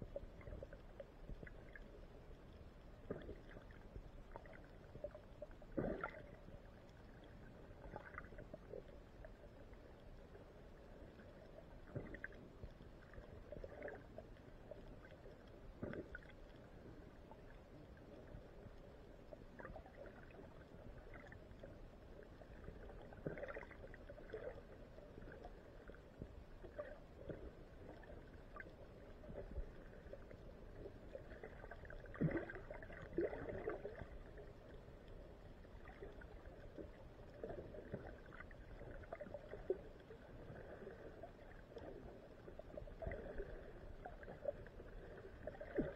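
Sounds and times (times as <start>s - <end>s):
faint low underwater rumble: 0.0s - 45.9s
underwater gurgles and knocks: 0.0s - 45.9s.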